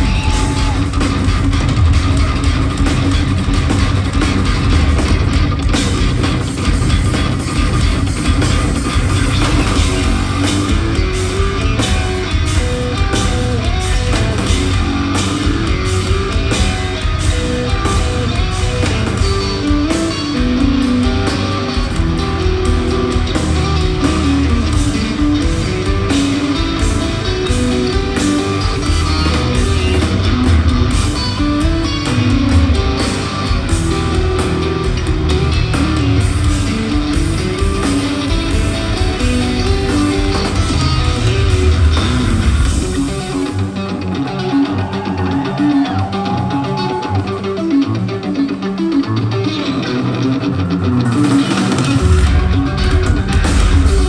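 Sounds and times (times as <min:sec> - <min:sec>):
electric guitars playing fast: 0:00.0 - 0:54.0
dense drumming: 0:21.9 - 0:43.3.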